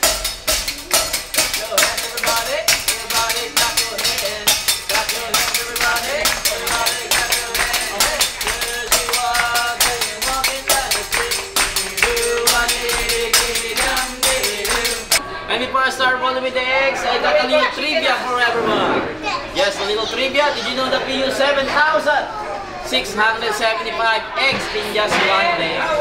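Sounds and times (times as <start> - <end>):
hand clapping: 0.0 - 15.2
upbeat music with percussive beat: 0.0 - 15.2.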